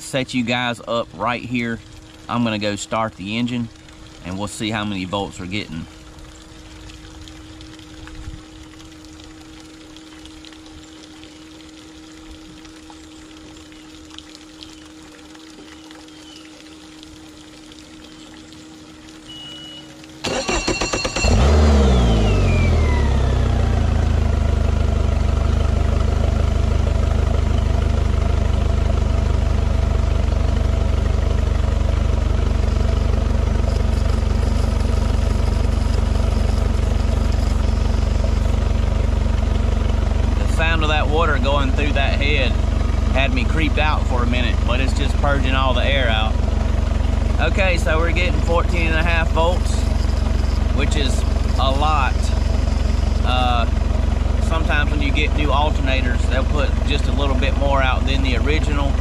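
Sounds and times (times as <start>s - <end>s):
low steady hum: 0.0s - 59.0s
outboard engine starting and idling: 0.0s - 59.0s
short beep: 19.3s - 21.5s.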